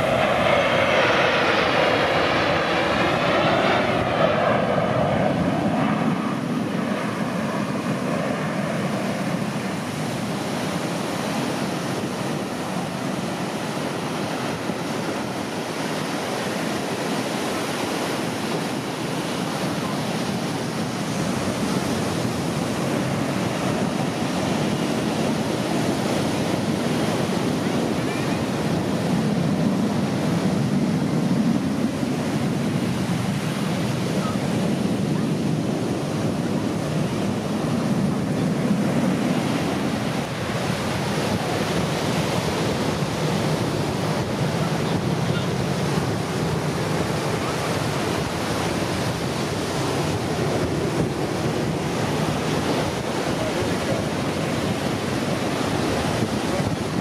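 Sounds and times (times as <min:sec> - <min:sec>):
jet whine sweeping in pitch: 0:00.0 - 0:09.8
jet noise rumble: 0:00.0 - 0:57.0.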